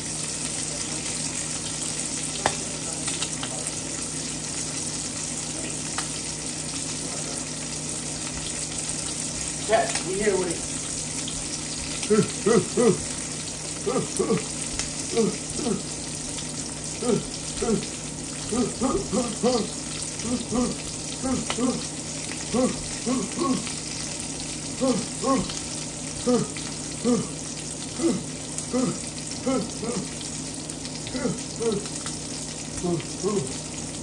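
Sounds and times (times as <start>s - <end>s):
food sizzling: 0.0s - 34.0s
short grunt-like sounds: 12.0s - 13.1s, 13.8s - 14.5s, 15.1s - 16.0s, 17.0s - 21.9s, 22.5s - 23.7s, 24.8s - 25.6s, 26.2s - 27.4s, 28.0s - 30.2s, 31.1s - 31.8s.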